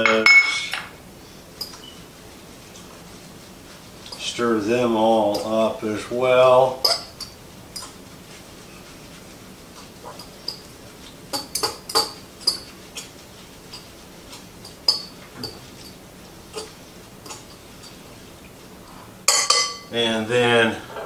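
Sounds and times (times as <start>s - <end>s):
utensil clinking against a dish: 0.0s - 0.9s, 1.6s - 2.0s, 4.0s - 18.3s, 18.9s - 19.9s.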